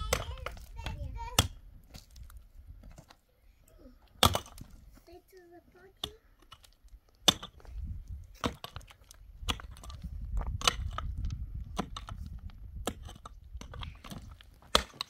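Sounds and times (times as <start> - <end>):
pick striking stony soil: 6.0 - 15.0.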